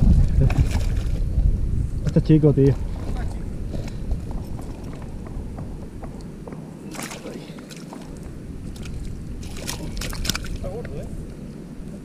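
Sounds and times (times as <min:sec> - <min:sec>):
water sloshing and splashing: 0:00.0 - 0:01.3, 0:06.8 - 0:11.0.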